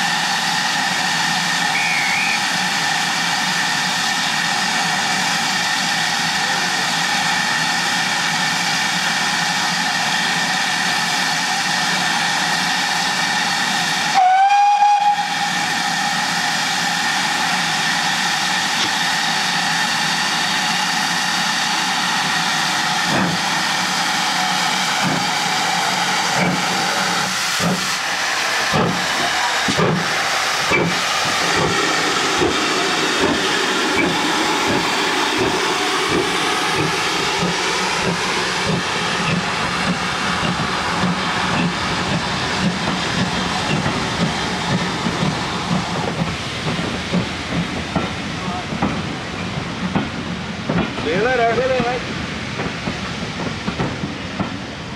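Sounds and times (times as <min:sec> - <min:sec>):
steam hissing: 0:00.0 - 0:54.9
steam locomotive whistle: 0:01.6 - 0:02.7, 0:14.1 - 0:16.2
locomotive exhaust beats: 0:23.0 - 0:54.9.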